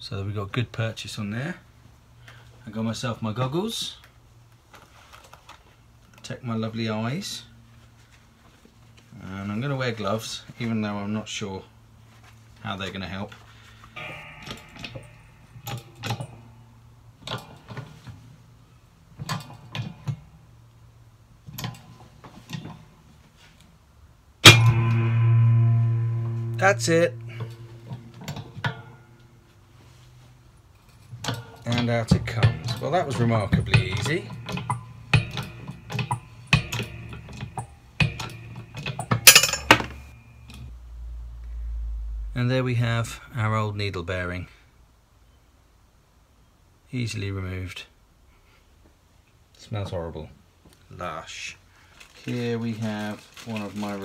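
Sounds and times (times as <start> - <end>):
loud bang with ringing tone: 14.0 - 16.8, 24.4 - 29.5
metal parts clinking: 30.9 - 40.6
shop press clicking and creaking: 31.1 - 40.1.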